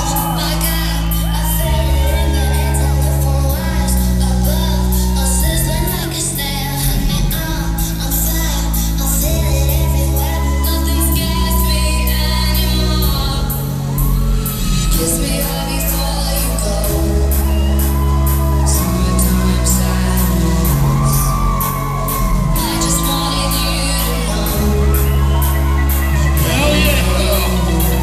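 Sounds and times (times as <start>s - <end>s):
loud electronic music with heavy bass: 0.0s - 28.0s.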